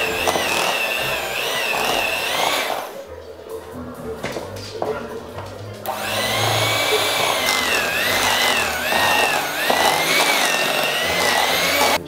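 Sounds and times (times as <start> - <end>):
electric hand mixer whining: 0.0 - 3.0, 5.8 - 12.0.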